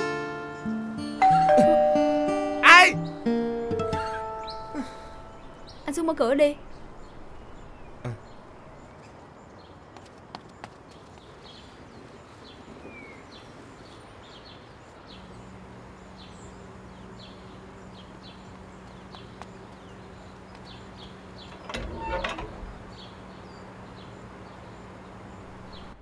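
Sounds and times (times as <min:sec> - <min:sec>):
gate rattling open: 0:21.4 - 0:23.1.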